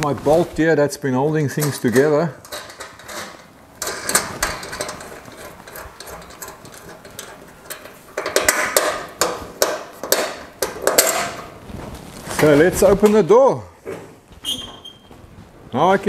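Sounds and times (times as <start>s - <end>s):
spanner clicking on metal bolt: 2.4s - 11.4s.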